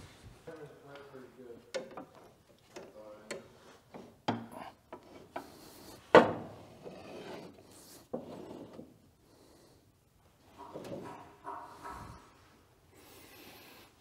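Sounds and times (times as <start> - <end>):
stone rubbing and scraping: 6.7 - 8.8
metal clunks: 10.6 - 12.3.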